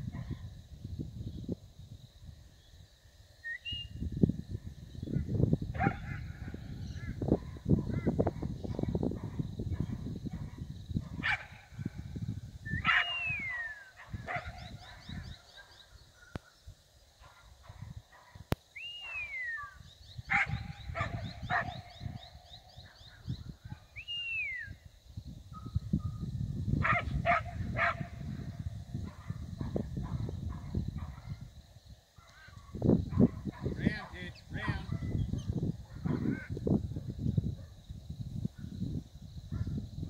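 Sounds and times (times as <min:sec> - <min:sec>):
rising and falling whistles: 0:03.4 - 0:04.2, 0:12.6 - 0:14.0, 0:18.7 - 0:20.0, 0:23.9 - 0:24.9
dog barking: 0:05.8 - 0:06.6, 0:07.4 - 0:11.7, 0:12.8 - 0:13.2, 0:14.0 - 0:16.6, 0:20.3 - 0:21.9, 0:26.8 - 0:28.2, 0:29.0 - 0:31.4, 0:32.2 - 0:33.8, 0:34.6 - 0:35.1, 0:35.8 - 0:36.3, 0:39.5 - 0:39.8.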